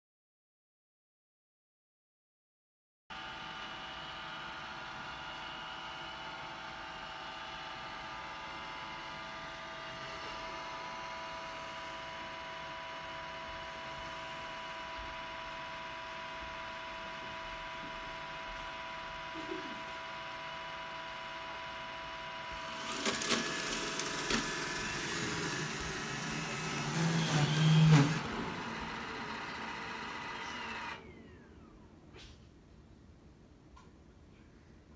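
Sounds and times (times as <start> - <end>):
robot vacuum motor whine: 3.2 - 31.9
robot vacuum tones: 7.9 - 32.3.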